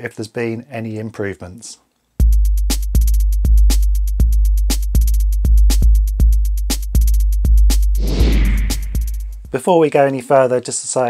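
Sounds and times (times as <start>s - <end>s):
electronic music with drum-machine beat: 2.2s - 8.0s, 8.6s - 9.6s.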